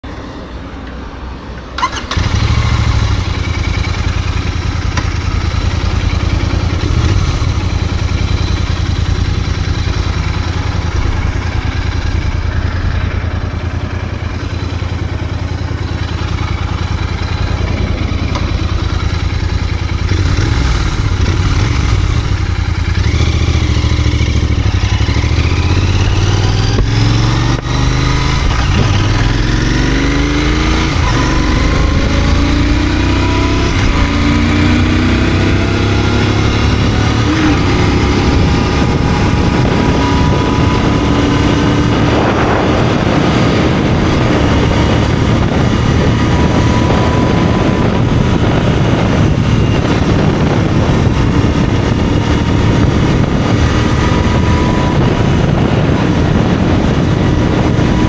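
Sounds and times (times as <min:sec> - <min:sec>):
motorcycle engine idling: 0:01.8 - 0:29.9
motorcycle engine revving and accelerating: 0:01.8 - 0:58.0.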